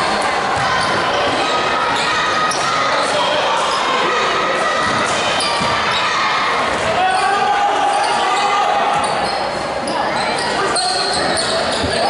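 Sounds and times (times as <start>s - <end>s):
murmur of crowd voices: 0.0s - 12.0s
basketball bouncing on court: 4.8s - 5.8s.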